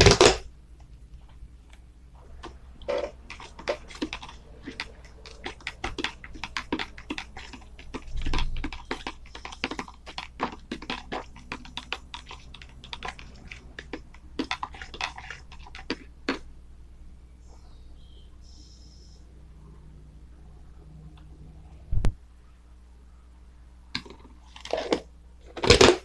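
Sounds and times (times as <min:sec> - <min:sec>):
grains ticking into plastic tub: 0:02.4 - 0:16.5.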